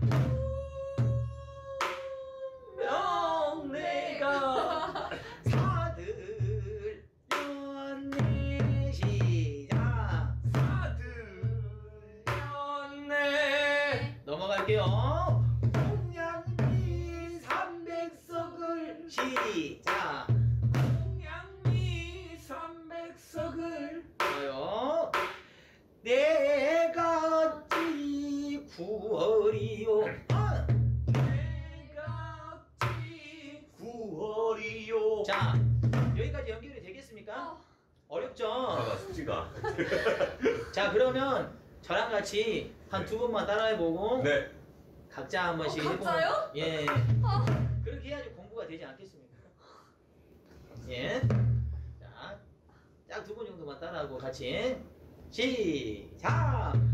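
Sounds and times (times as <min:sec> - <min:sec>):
deep barrel drum strokes: 0:46.9 - 0:48.1, 0:51.2 - 0:52.0.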